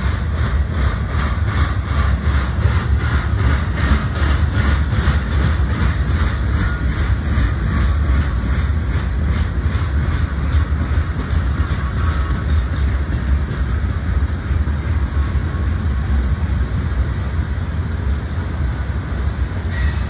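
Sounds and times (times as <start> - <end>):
wheels clacking over rail joints: 0.0 - 18.4
freight train rolling past: 0.0 - 20.0.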